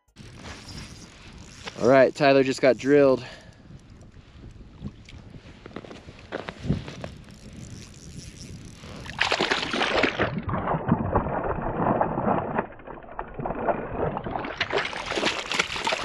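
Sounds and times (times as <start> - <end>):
water splashing from thrashing fish: 9.0 - 16.0.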